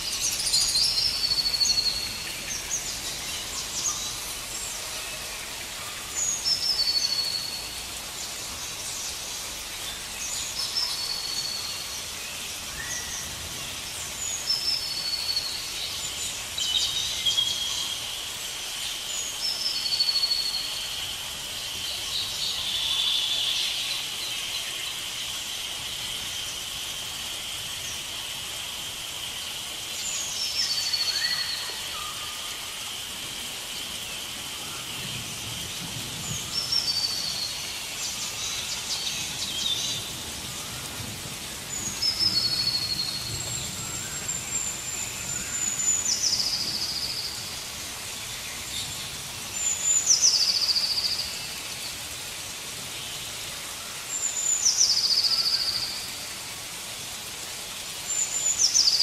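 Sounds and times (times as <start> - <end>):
constant hiss: 0.0 - 59.0.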